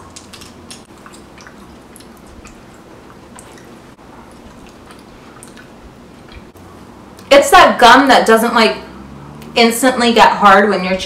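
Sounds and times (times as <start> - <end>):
mouth chewing gum smacks: 0.0 - 6.6.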